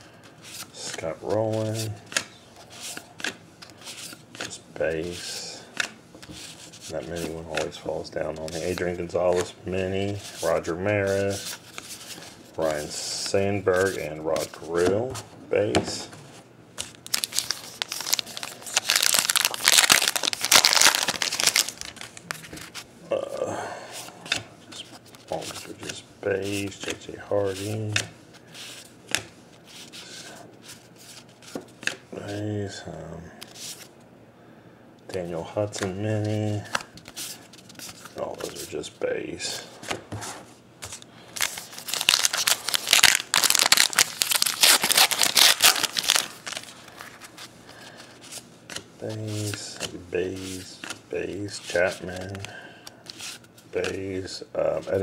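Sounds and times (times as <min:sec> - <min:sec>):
wrapper tearing and crinkling: 0:17.0 - 0:22.4, 0:41.4 - 0:47.3.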